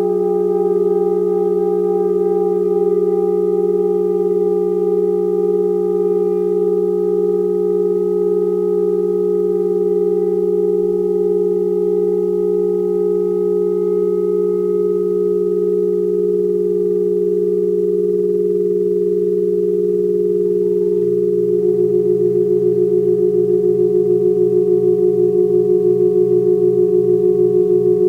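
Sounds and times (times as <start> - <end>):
low saxophone drone: 0.0 - 16.0
faint high electronic tones: 0.0 - 28.0.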